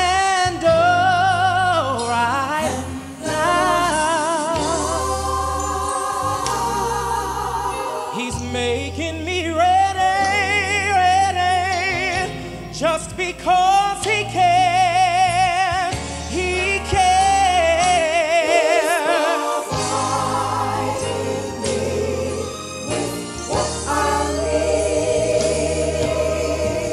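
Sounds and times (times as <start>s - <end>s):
man singing gospel: 0.0s - 6.6s, 7.7s - 26.9s.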